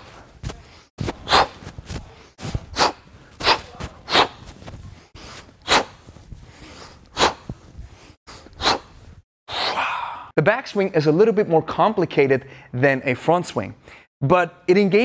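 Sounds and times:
man's sharp forceful breaths: 0.0s - 10.3s.

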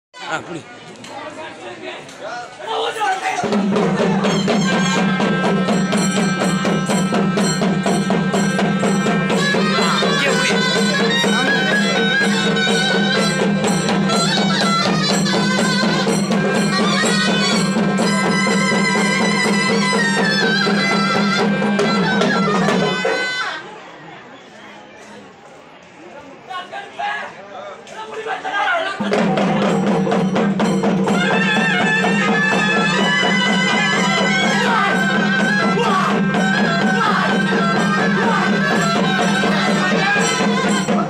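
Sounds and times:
reedy drone with melody: 4.2s - 23.1s.

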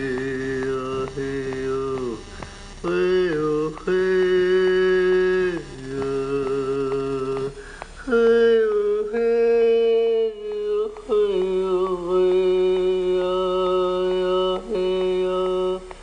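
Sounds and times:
person chanting sustained notes: 0.0s - 15.9s
person breathing: 2.3s - 2.6s, 7.5s - 8.1s.

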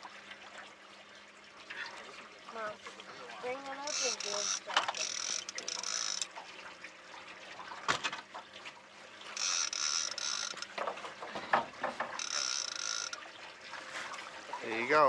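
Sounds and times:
fishing reel gears whining: 3.8s - 6.3s, 9.4s - 10.8s, 12.2s - 13.2s.

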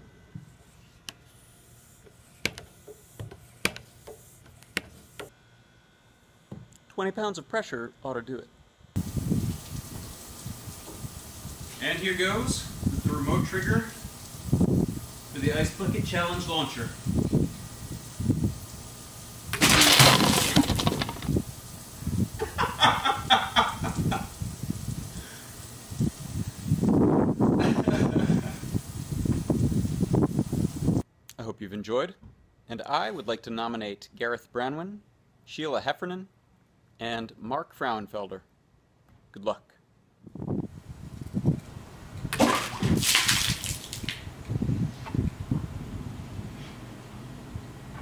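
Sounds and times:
water hissing and splashing: 9.0s - 27.4s, 28.1s - 31.0s, 42.2s - 44.3s
man laughing and whooping: 22.4s - 24.4s, 27.6s - 28.6s.

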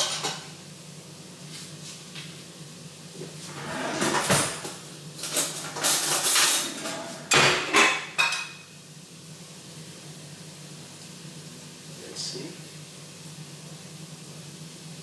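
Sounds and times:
dishes clattering: 3.5s - 8.6s.

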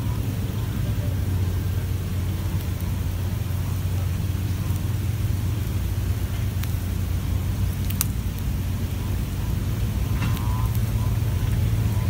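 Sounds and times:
low rumble: 0.0s - 12.0s
faint ticks: 7.6s - 8.5s.

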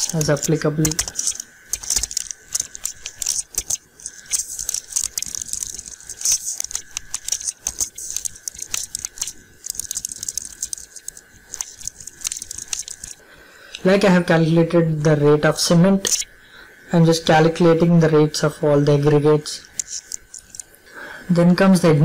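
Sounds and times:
keyboard typing: 0.0s - 13.2s, 19.7s - 20.6s
faint high whine: 0.0s - 22.0s.

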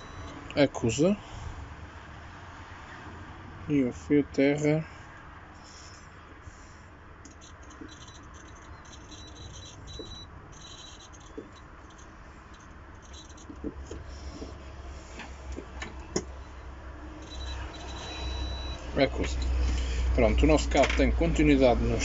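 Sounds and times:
continuity buzzer crackling: 0.0s - 0.4s, 7.4s - 13.5s, 16.4s - 19.5s
probe scratching on cable: 7.3s - 15.1s, 17.2s - 19.6s.

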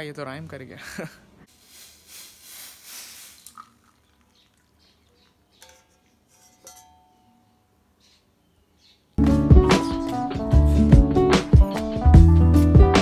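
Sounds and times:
coffee pouring into mug: 3.4s - 5.1s
light metallic clinks: 5.6s - 7.4s.

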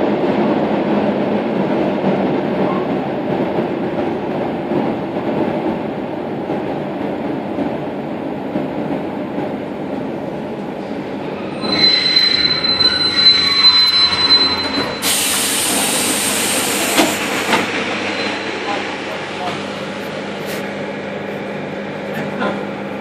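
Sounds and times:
electric train rumbling: 0.0s - 23.0s
train brakes squealing: 11.2s - 17.1s, 18.0s - 18.8s
air hiss of doors opening: 14.9s - 17.7s.

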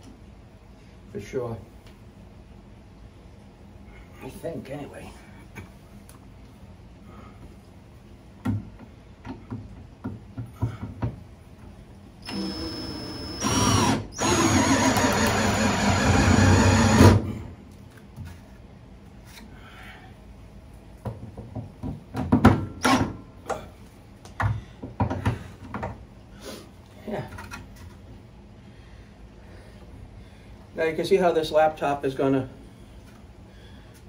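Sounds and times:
cordless drill driving bolt: 12.2s - 17.2s.

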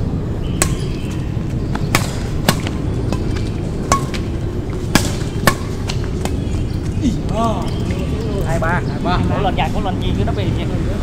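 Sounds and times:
badminton rackets hitting shuttlecock: 0.6s - 6.6s.

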